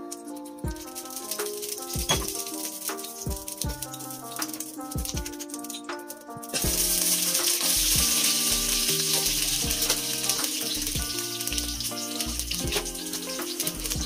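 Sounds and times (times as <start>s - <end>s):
faint background music: 0.0s - 14.0s
vegetables sizzling in hot oil: 6.5s - 14.0s.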